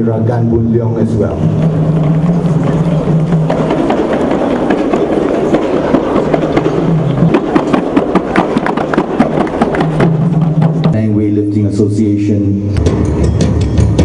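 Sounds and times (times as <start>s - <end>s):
crowd hubbub in hall: 0.8s - 11.0s
sharp percussive strikes: 1.2s - 11.0s, 12.7s - 14.0s.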